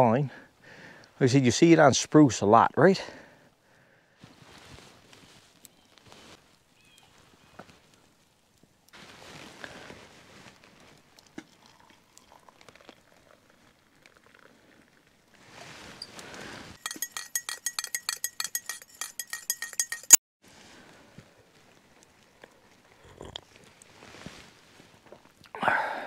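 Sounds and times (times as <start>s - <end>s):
hot water pouring into mug: 11.2s - 14.6s
spoon clinking in mug: 16.8s - 20.2s.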